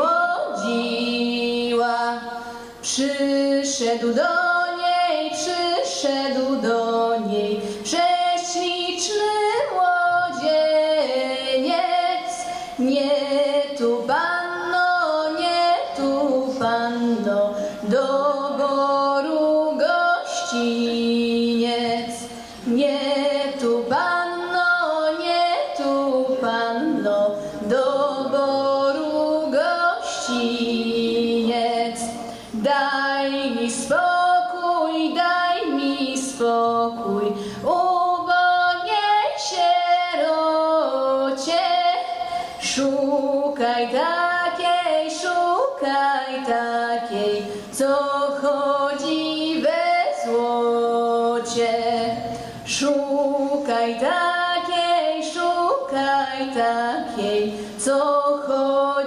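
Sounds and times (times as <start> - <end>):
woman singing lead: 0.0 - 59.0
women's vocal ensemble singing: 0.0 - 59.0.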